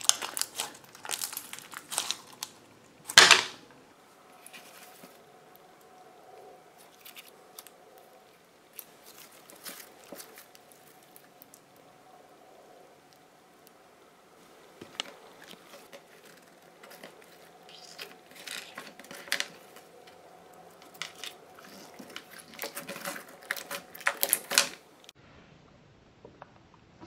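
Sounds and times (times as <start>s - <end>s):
slime with beads clicking and crackling: 0.0s - 3.3s.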